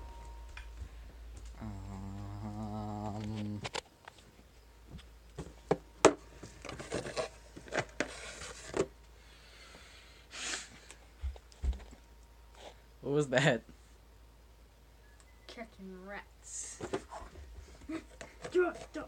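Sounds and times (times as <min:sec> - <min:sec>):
person humming a note: 0:01.5 - 0:03.7.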